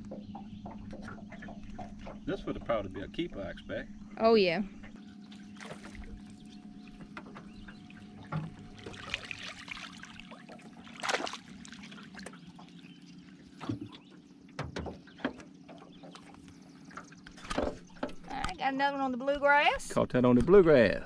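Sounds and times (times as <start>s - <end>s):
steady low hum: 0.0s - 21.0s
fish splashing in water: 5.2s - 18.0s
short knocks: 14.6s - 16.2s.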